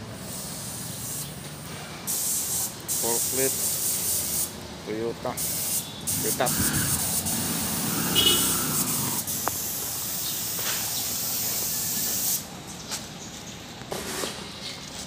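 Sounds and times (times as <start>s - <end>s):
paint spray gun hissing: 0.1s - 1.4s, 2.1s - 4.6s, 5.3s - 12.5s.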